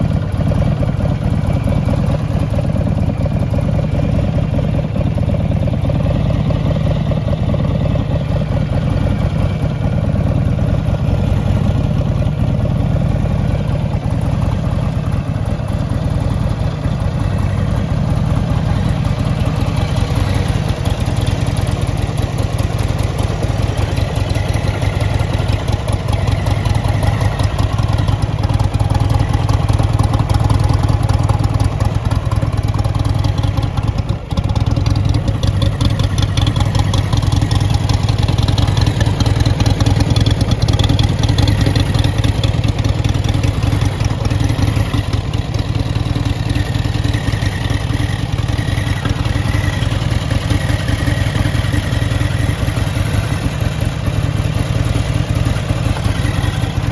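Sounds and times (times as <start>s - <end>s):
motorcycle engine idling: 0.0s - 56.9s.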